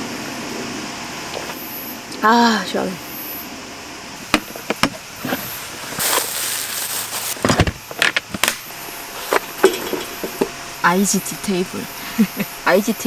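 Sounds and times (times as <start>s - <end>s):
camp gear clicks and knocks: 7.3s - 8.6s.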